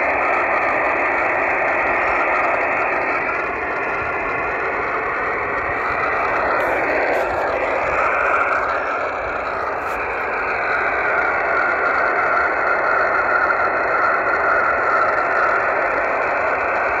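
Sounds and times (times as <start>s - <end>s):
rough rushing radio tone: 1.7s - 11.4s.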